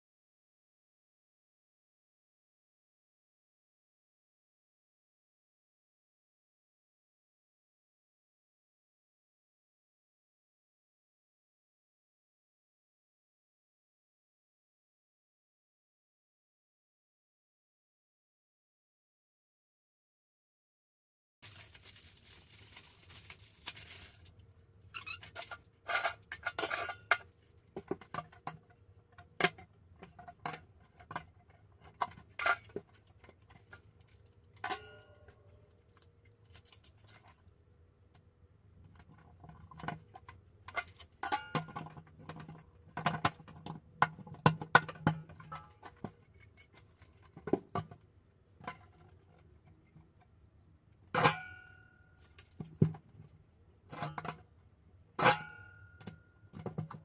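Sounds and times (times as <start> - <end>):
plastic film rustling: 21.4 - 24.6
wire shelves clinking on tile: 25.0 - 28.6.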